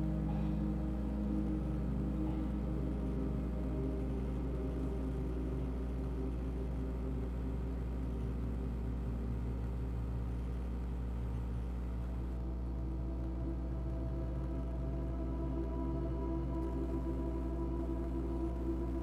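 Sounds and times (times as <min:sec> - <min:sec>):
ambient meditation music: 0:00.0 - 0:19.0.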